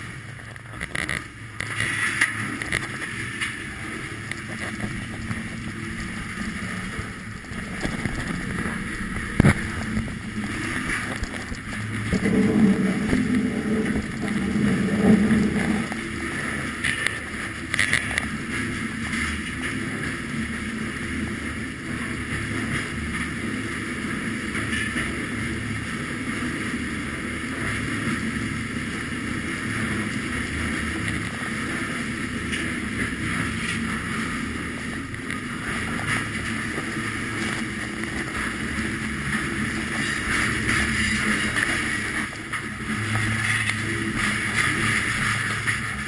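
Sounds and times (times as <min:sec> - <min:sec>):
freight train wheels rumbling: 0:00.0 - 0:46.0
wind on microphone: 0:04.0 - 0:20.8.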